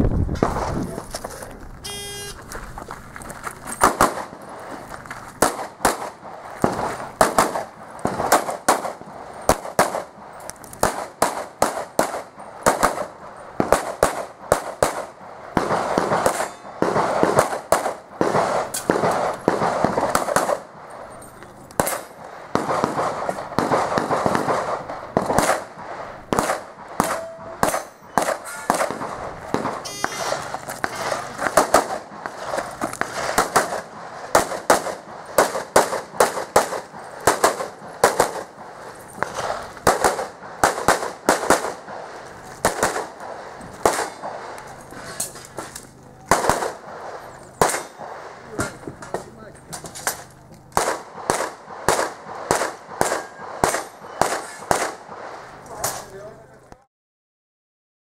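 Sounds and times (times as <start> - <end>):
electronic shot timer beep: 1.9 - 2.4, 29.8 - 30.4
pistol shots: 3.8 - 4.7, 5.4 - 21.1, 21.8 - 45.6, 46.3 - 56.1.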